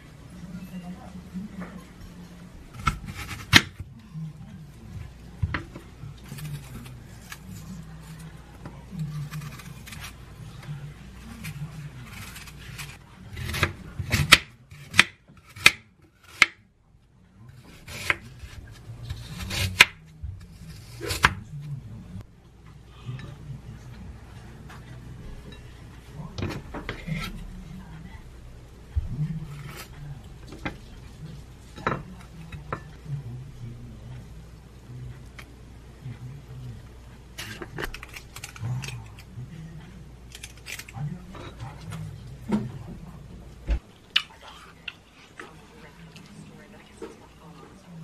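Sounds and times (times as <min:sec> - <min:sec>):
knife cutting apple: 0:02.7 - 0:03.9, 0:05.4 - 0:16.6, 0:17.5 - 0:21.8, 0:26.3 - 0:27.6, 0:29.3 - 0:31.0, 0:37.3 - 0:39.3.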